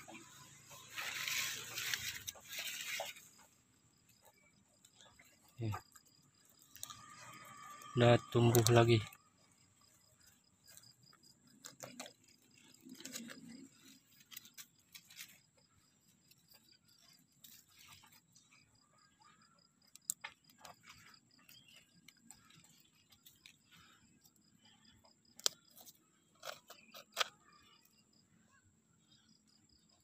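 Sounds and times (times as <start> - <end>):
soft rustles: 0.1 - 4.2.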